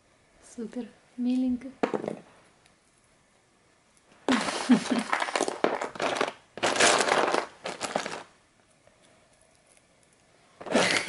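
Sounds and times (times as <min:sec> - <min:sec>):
food pouches crinkling: 0:04.3 - 0:08.4.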